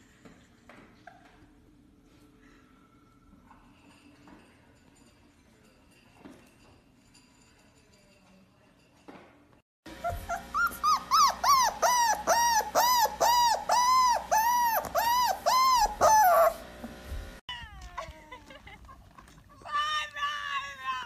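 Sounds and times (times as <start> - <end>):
puppy whining: 9.9 - 16.7.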